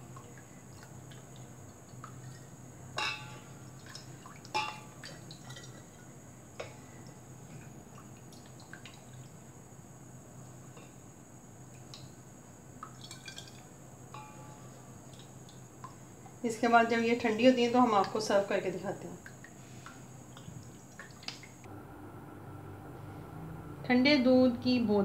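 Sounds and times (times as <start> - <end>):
milk trickling through funnel: 12.8 - 13.7.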